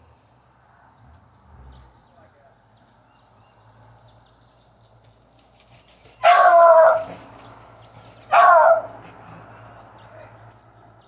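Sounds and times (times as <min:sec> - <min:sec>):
dog barking: 0:06.2 - 0:07.2, 0:08.3 - 0:09.0.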